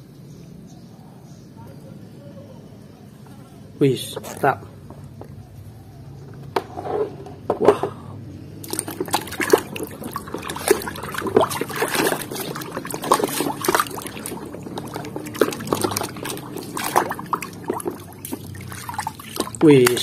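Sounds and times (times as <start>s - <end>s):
hand splashing in water: 8.6s - 20.0s
water trickling: 8.6s - 20.0s.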